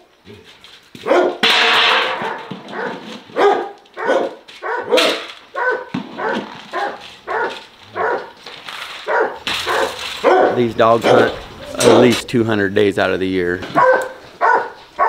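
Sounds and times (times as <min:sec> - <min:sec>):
hounds barking: 0:01.0 - 0:08.4, 0:09.0 - 0:12.2, 0:13.7 - 0:15.0.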